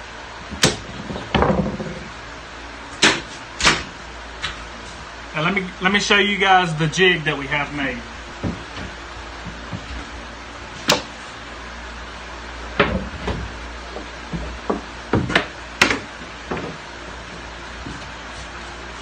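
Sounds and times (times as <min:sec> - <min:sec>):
steady low hum: 0:00.0 - 0:19.0
wooden knocks and clatters: 0:00.6 - 0:02.1, 0:12.8 - 0:16.8.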